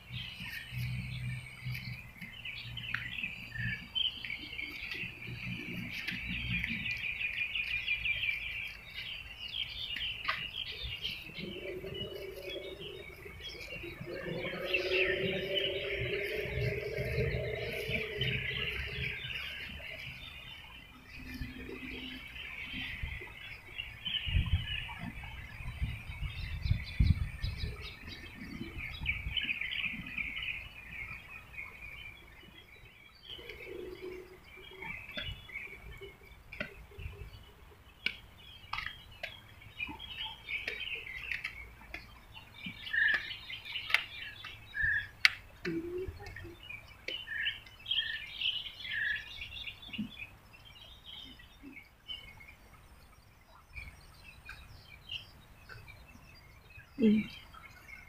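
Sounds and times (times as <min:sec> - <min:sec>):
small birds chirping: 0:00.0 - 0:58.0
low rumble: 0:10.9 - 0:23.4.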